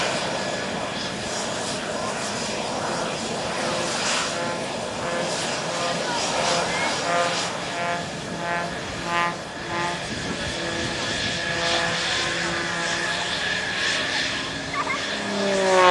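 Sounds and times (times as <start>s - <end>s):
aircraft engine hum: 0.0s - 15.9s.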